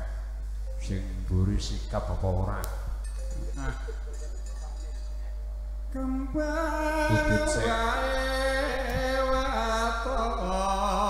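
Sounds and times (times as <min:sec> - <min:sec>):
solo voice singing ornamented notes: 0:05.9 - 0:11.0.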